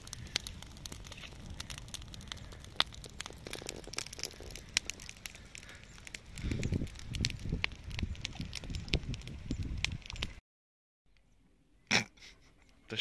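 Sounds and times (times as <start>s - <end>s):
campfire crackling and popping: 0.0s - 10.4s.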